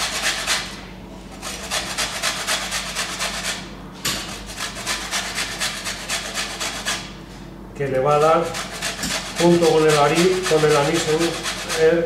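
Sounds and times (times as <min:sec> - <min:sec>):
lemon rind grating on grater: 0:00.0 - 0:03.7, 0:04.3 - 0:07.1, 0:08.2 - 0:12.0.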